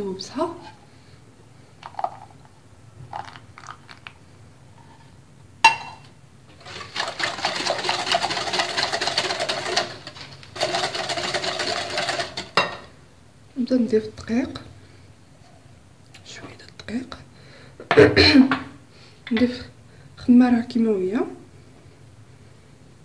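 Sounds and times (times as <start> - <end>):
whisk rattling in glass bowl: 6.6 - 12.9.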